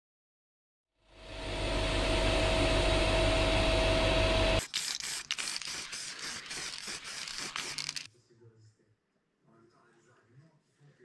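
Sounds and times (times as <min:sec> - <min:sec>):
low hum: 0:01.0 - 0:04.6
air nozzle hissing: 0:04.6 - 0:08.1
spray-paint can hissing in spurts: 0:04.6 - 0:08.1.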